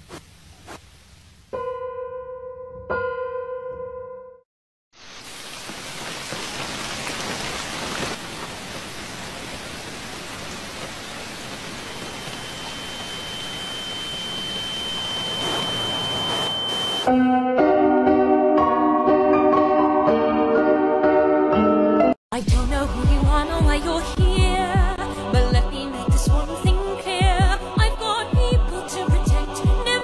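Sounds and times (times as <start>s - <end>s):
steady rushing hiss: 5.0s - 17.1s
high steady tone: 11.9s - 17.1s.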